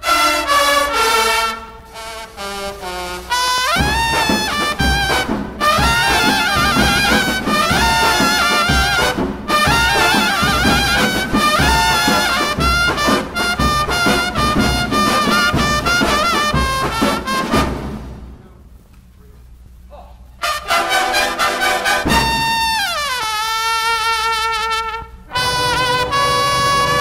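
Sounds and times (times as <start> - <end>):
bugles playing: 0.0 - 18.8, 20.4 - 27.0
drums beating: 2.4 - 18.9, 20.4 - 27.0.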